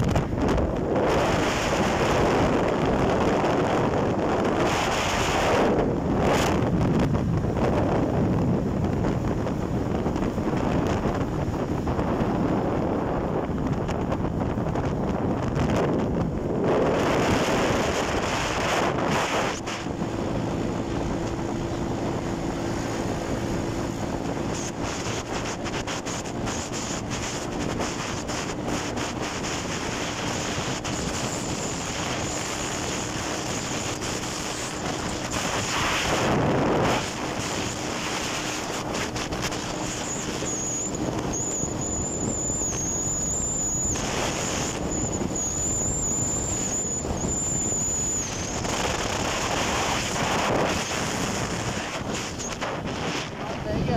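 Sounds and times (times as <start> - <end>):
low engine hum: 0.0 - 53.9
wind rushing over microphone: 0.0 - 53.9
thin high whine: 16.1 - 53.9.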